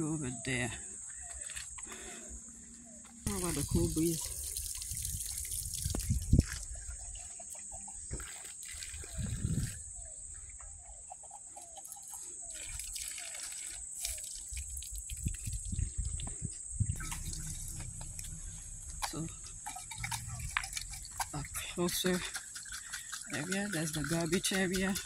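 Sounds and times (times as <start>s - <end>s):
water trickling and dripping: 3.2s - 9.8s, 11.4s - 25.0s
wind on microphone: 3.3s - 7.3s, 9.0s - 10.0s, 14.5s - 21.7s
short chirps: 17.0s - 20.9s.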